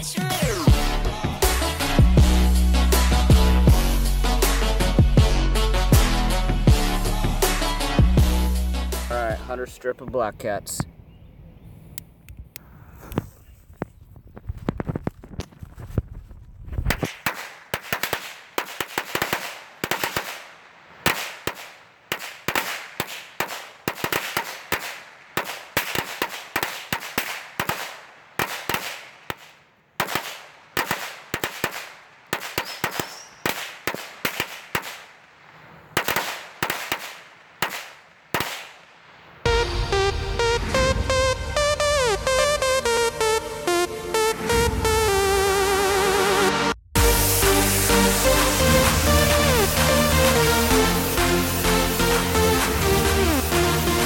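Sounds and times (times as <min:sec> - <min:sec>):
firecrackers banging: 0:16.7 - 0:45.2.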